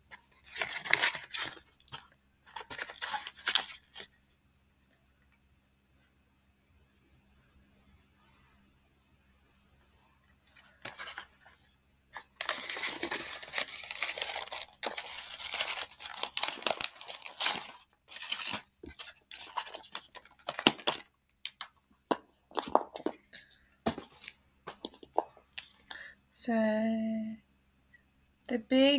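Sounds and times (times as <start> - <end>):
card and plastic crackling: 0.3 - 4.1, 10.6 - 11.5, 12.2 - 26.0
packaging ripping: 12.2 - 21.7, 23.9 - 25.8.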